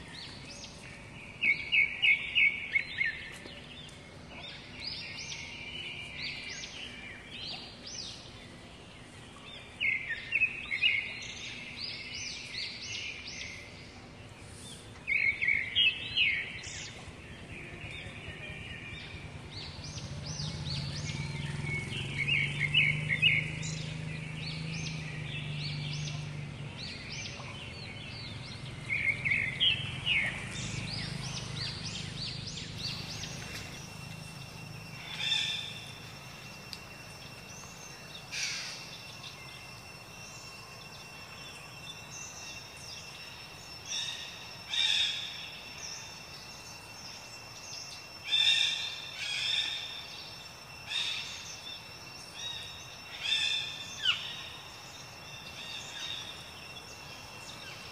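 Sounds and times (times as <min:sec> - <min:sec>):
birds chirping: 0:00.0 - 0:57.9
outdoor background noise: 0:00.0 - 0:57.9
low hum: 0:16.6 - 0:48.2.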